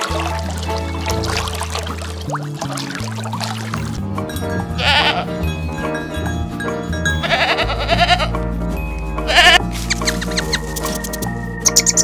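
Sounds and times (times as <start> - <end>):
background music: 0.0 - 12.0
goat bleating: 4.8 - 5.3, 7.2 - 8.4, 9.3 - 9.6.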